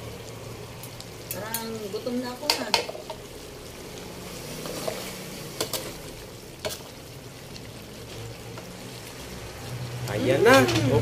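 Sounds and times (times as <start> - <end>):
food simmering and sizzling in wok: 0.0 - 11.0
metal ladle tapping pan: 2.4 - 3.2.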